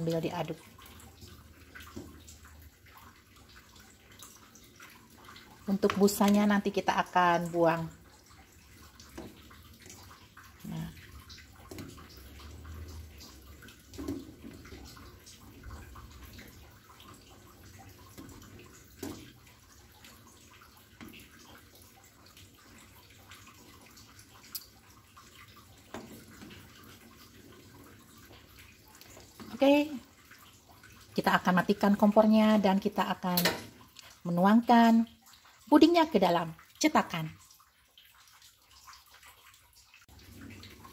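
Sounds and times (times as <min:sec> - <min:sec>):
pudding sloshing while stirred: 0:00.0 - 0:40.9.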